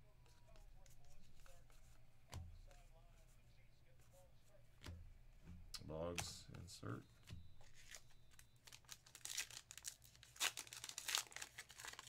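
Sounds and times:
wrapper crinkling and tearing: 7.8s - 12.0s.

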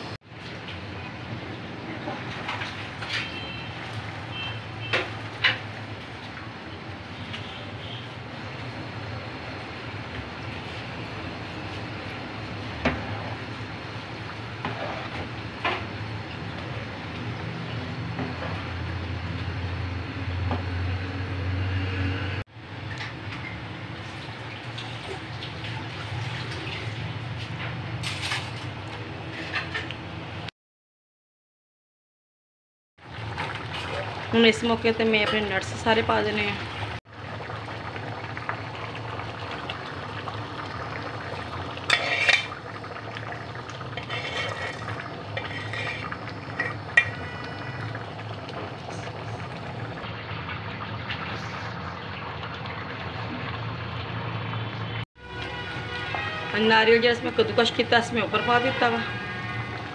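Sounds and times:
pot bubbling at a boil: 0.0s - 28.0s, 33.0s - 59.9s
metal bowl scraping and clinking: 29.3s - 29.9s, 41.8s - 42.8s, 43.9s - 47.8s
liquid swishing in pot: 41.8s - 42.8s, 43.8s - 47.9s.

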